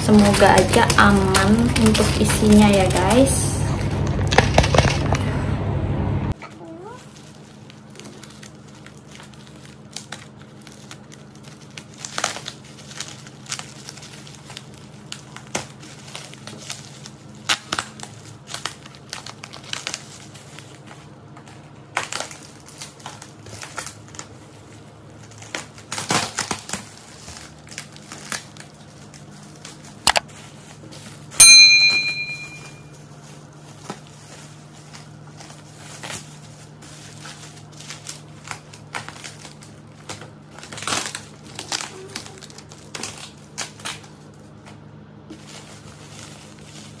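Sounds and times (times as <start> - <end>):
bubble wrap crinkling: 0.0 - 5.6, 6.3 - 47.0
ringing clink: 31.4 - 32.8.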